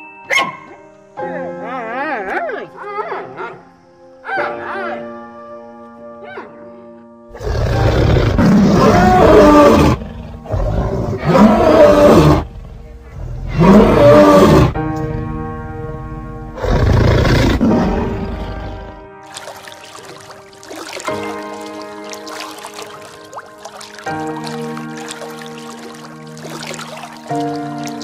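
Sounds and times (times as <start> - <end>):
background music: 0.0 - 28.0
lion roaring: 7.3 - 14.8, 16.6 - 19.0.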